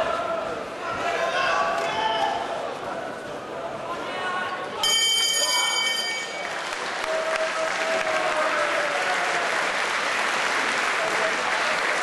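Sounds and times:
boxing ring bell ringing: 4.8s - 6.6s
crowd applauding: 6.2s - 12.0s.

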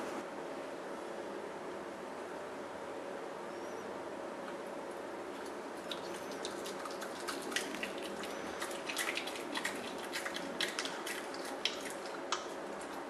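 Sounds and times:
faint room hum: 0.0s - 13.0s
animal chewing wet smacks: 5.4s - 13.0s.

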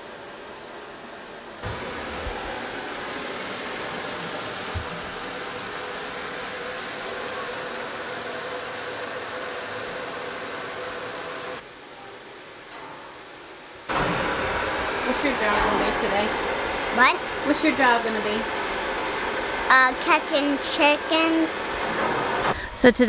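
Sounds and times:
water rushing into plastic tank: 1.6s - 11.1s.

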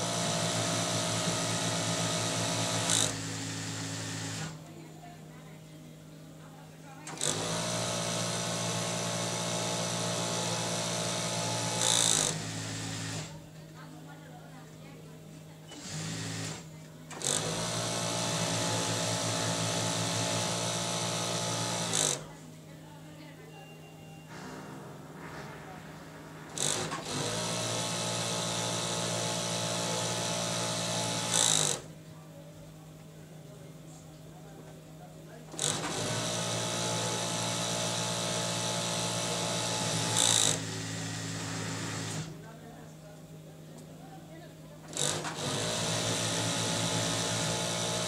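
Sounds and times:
industrial sewing machine running: 0.0s - 4.6s, 7.0s - 13.4s, 15.7s - 22.3s, 26.5s - 31.9s, 35.5s - 42.4s, 44.9s - 48.0s.

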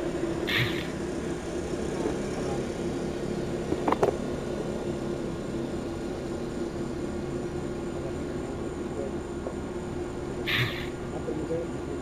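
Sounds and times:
fan running: 0.0s - 12.0s
idling vehicle hum: 0.0s - 12.0s
short sharp clicks: 0.5s - 0.9s, 10.5s - 10.9s.

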